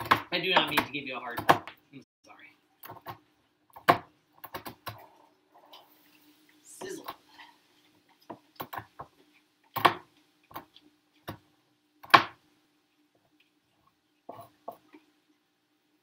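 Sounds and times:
knife chopping on plastic board: 0:00.0 - 0:01.8, 0:09.7 - 0:11.4, 0:12.0 - 0:12.4.

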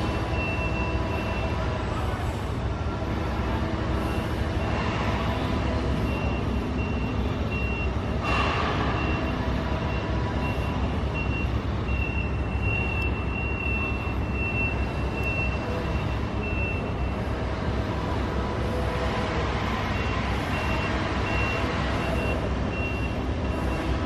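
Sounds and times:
backup alarm beeping: 0:00.0 - 0:01.8, 0:05.8 - 0:08.2, 0:08.9 - 0:17.3, 0:19.9 - 0:24.0
diesel machinery rumbling: 0:00.0 - 0:24.0.

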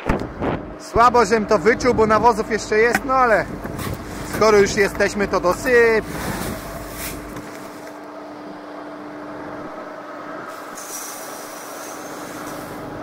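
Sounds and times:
fertilizer rustling in a sack: 0:03.7 - 0:08.0.

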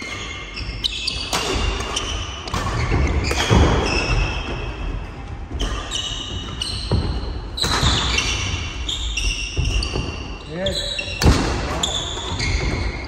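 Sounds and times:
racket hitting shuttlecock: 0:00.0 - 0:04.8, 0:05.6 - 0:10.2, 0:11.1 - 0:13.0
shoes squeaking on floor: 0:00.0 - 0:13.0.

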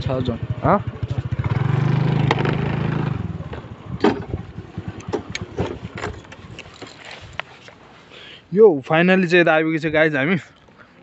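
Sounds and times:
scooter engine puttering: 0:00.0 - 0:07.4.

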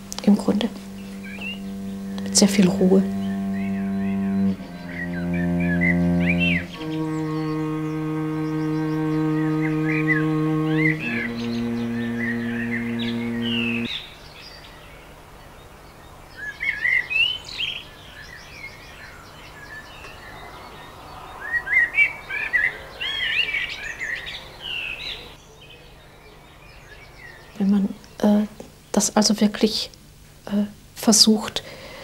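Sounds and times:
held musical chord: 0:00.0 - 0:13.9
faint steady hiss: 0:00.0 - 0:32.0
songbirds chirping: 0:00.0 - 0:32.0.

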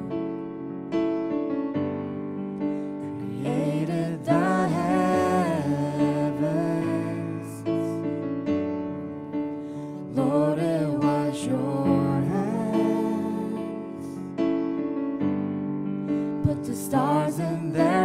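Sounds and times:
person singing: 0:03.0 - 0:08.2, 0:10.0 - 0:14.3, 0:16.3 - 0:18.0.

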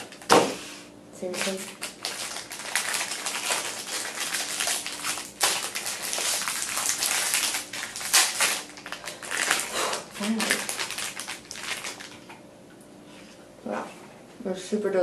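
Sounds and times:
plastic wrapper crinkling: 0:01.2 - 0:12.4
wrapper tearing: 0:01.2 - 0:12.4.

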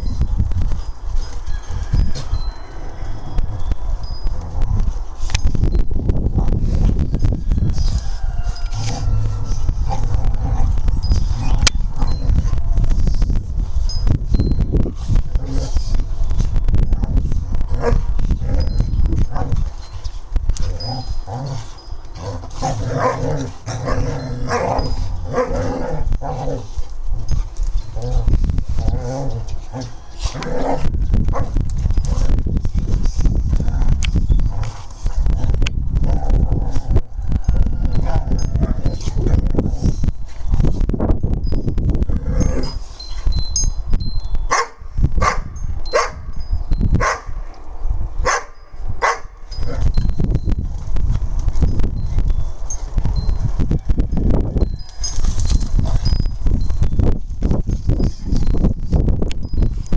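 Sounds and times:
dogs growling: 0:20.5 - 0:37.1, 0:42.0 - 0:42.9
dog play barks: 0:22.2 - 0:26.7, 0:44.5 - 0:46.2, 0:47.0 - 0:47.3, 0:48.2 - 0:49.8
dogs scuffling: 0:54.8 - 0:56.6.

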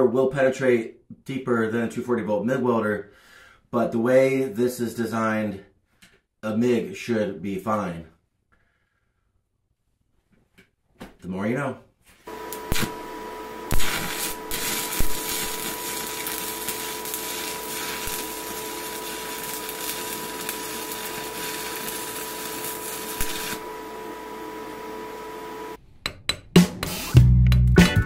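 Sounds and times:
steady hum: 0:12.3 - 0:25.8
welding arc crackling hiss: 0:12.3 - 0:25.8.

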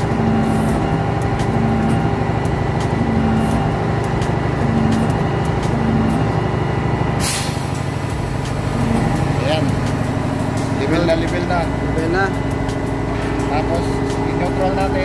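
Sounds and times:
diesel engine idling: 0:00.0 - 0:15.0
short hiss: 0:07.2 - 0:07.8.

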